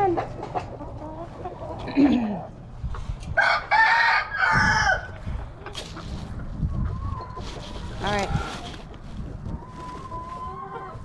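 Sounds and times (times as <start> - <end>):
chicken calls: 0.0 - 11.0
rooster crowing: 3.4 - 5.2.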